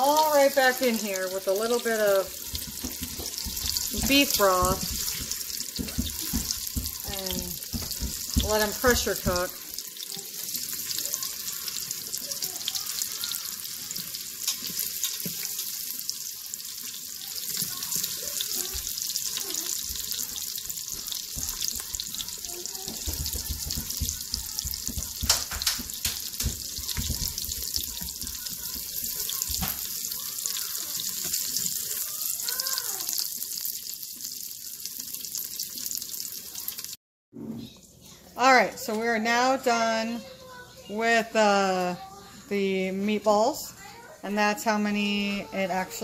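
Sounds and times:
meatballs sizzling in a pot: 0:00.0 - 0:37.0.

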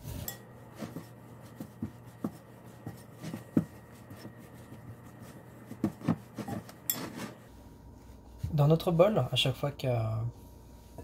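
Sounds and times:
dough kneaded in glass bowl: 0:00.0 - 0:09.2.

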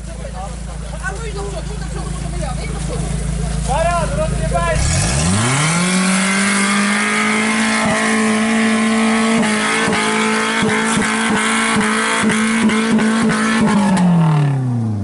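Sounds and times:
engine at high revs: 0:04.5 - 0:15.0.

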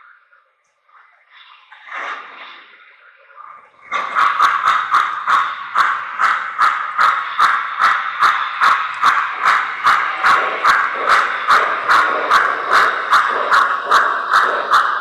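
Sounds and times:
steam locomotive chuffing: 0:03.8 - 0:15.0.

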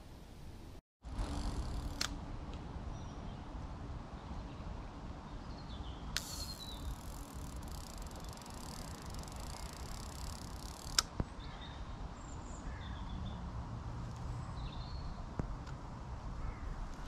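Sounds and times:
faint birdsong: 0:02.8 - 0:13.5, 0:14.1 - 0:15.4, 0:16.3 - 0:17.0
line hissing off a reel: 0:06.2 - 0:11.0
fishing reel click: 0:06.2 - 0:11.1.

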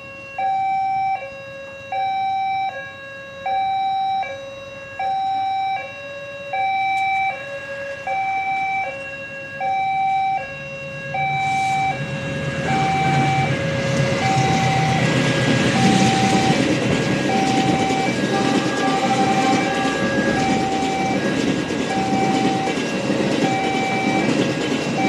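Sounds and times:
two-tone crossing alarm: 0:00.0 - 0:25.0
train rumbling: 0:09.9 - 0:25.0.

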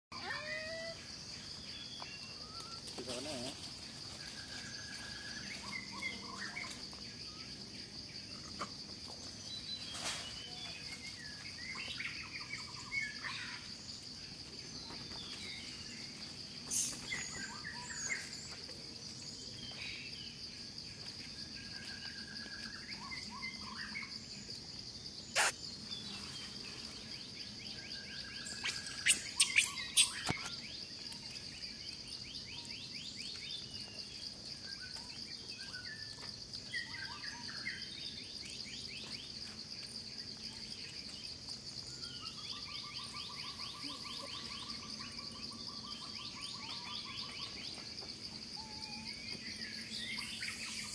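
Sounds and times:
bird chirps and calls: 0:25.4 - 0:25.6, 0:28.2 - 0:30.5
high-pitched insect drone: 0:25.4 - 0:25.6, 0:28.2 - 0:30.6, 0:48.6 - 0:50.9
loud shrill calls: 0:25.4 - 0:25.6, 0:28.5 - 0:30.4.

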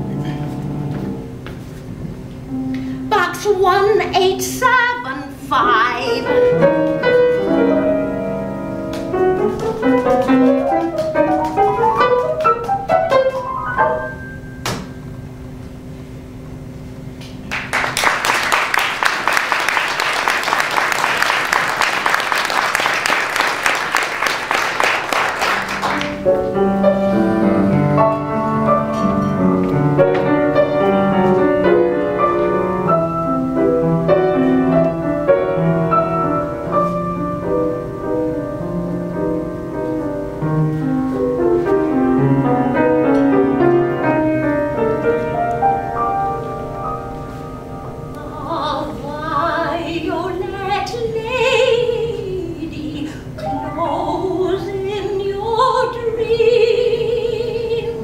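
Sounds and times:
grand piano playing chords: 0:00.0 - 0:17.0, 0:18.5 - 0:57.0
woman singing: 0:03.1 - 0:06.4, 0:48.2 - 0:58.0
audience applauding: 0:17.4 - 0:26.2.

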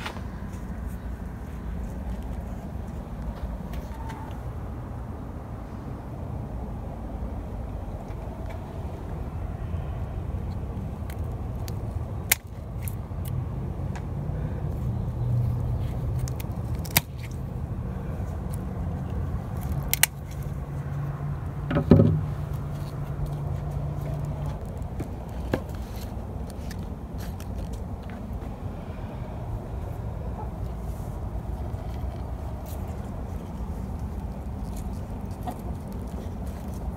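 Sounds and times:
steady low rumble: 0:00.0 - 0:36.9
loud knock: 0:21.7 - 0:22.3.

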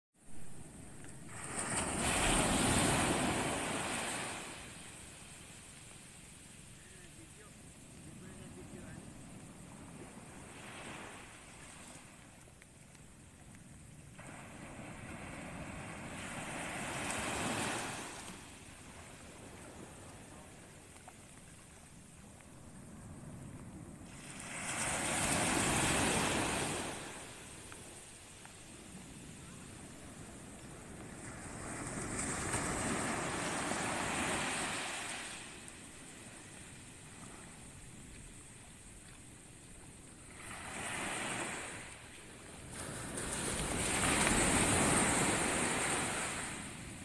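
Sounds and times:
sea waves breaking on sand: 0:00.6 - 0:12.5, 0:14.1 - 0:37.8, 0:40.2 - 0:47.0.

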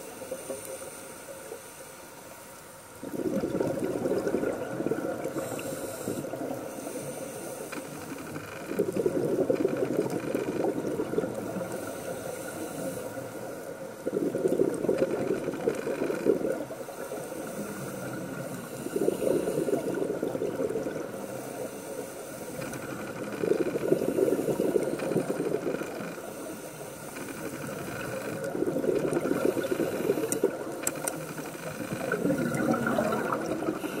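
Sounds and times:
exhaled bubbles rushing: 0:03.0 - 0:06.7, 0:08.7 - 0:11.8, 0:13.8 - 0:21.2, 0:23.0 - 0:26.0, 0:27.6 - 0:30.8, 0:31.7 - 0:34.0
diver breathing through regulator: 0:05.1 - 0:34.0.

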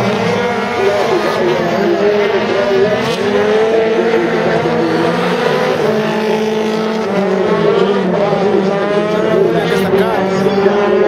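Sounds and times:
rally car engine revving: 0:00.0 - 0:11.0.

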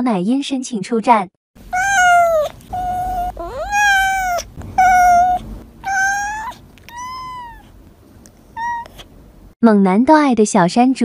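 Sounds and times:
cat meowing: 0:01.6 - 0:07.7, 0:08.6 - 0:09.1.

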